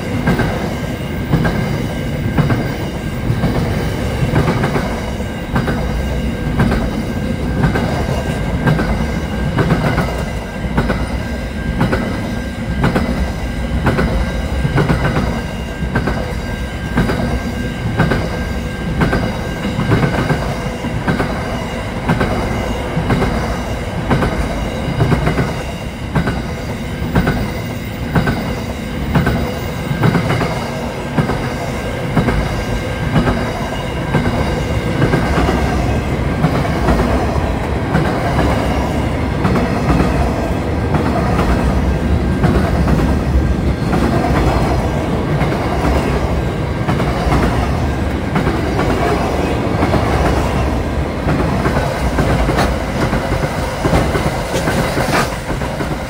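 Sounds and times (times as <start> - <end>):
freight train rumble: 0.0 - 56.0.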